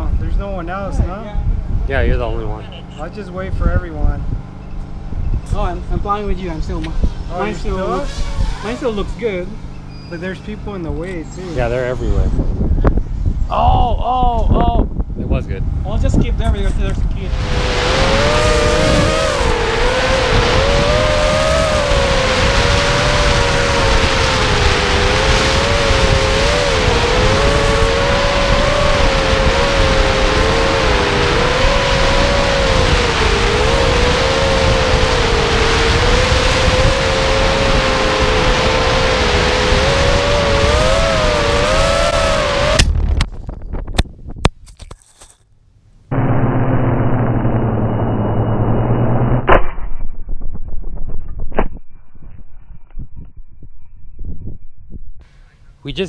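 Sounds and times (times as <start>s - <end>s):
wind rushing on microphone: 0.0s - 9.6s, 10.2s - 45.0s, 49.9s - 55.8s
quadcopter impact: 16.4s - 45.4s, 46.1s - 52.5s
drone motors whining: 16.8s - 43.6s, 46.1s - 49.5s.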